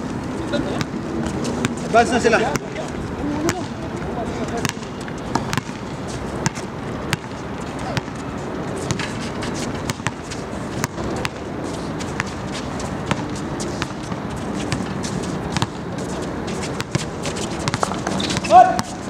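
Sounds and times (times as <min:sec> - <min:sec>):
shoes striking court: 0:00.0 - 0:19.0
steady background noise: 0:00.0 - 0:19.0
basketball bouncing: 0:02.5 - 0:03.8, 0:04.6 - 0:09.1, 0:09.9 - 0:11.5, 0:13.0 - 0:15.8, 0:16.7 - 0:19.0.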